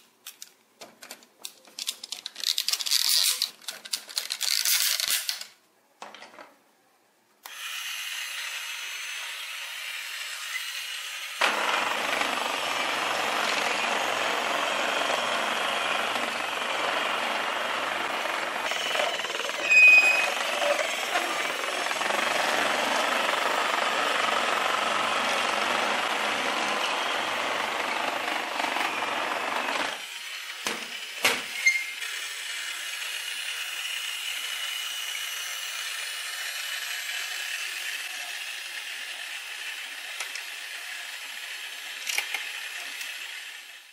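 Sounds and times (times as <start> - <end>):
toy motor and plastic gears running: 1.8 - 5.5, 7.4 - 43.9.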